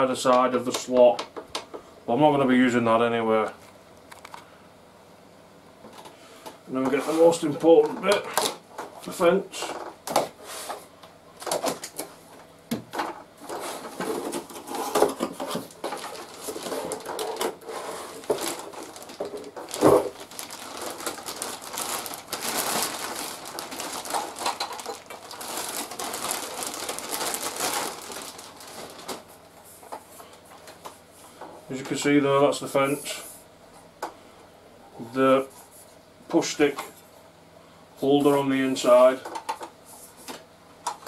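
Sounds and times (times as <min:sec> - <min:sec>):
cardboard and plastic rustling: 0:06.8 - 0:32.0.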